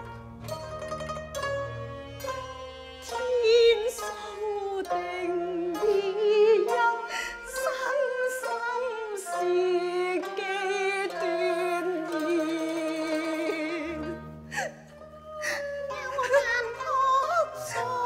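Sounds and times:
instrumental accompaniment: 0.0 - 18.0
woman singing with vibrato: 3.1 - 14.2, 15.0 - 18.0.

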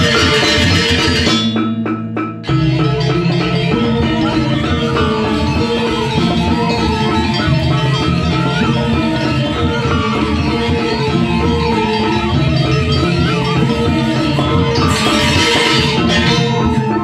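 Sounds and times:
gamelan ensemble playing: 0.0 - 17.0
low ringing gong tone: 12.6 - 17.0.

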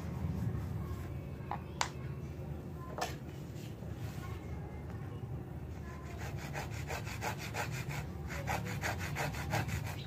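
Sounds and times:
hand saw sawing wood: 6.1 - 10.0.

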